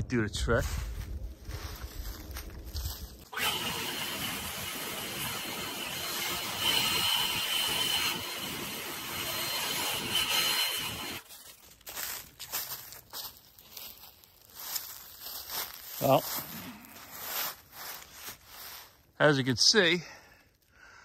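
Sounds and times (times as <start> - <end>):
leaf blower running: 3.3 - 11.2.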